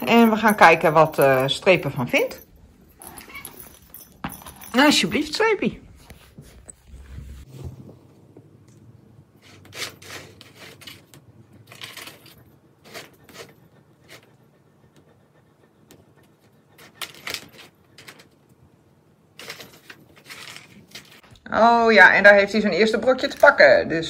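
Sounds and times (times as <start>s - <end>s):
kibble rattling in cardboard toy: 19.4s - 21.2s.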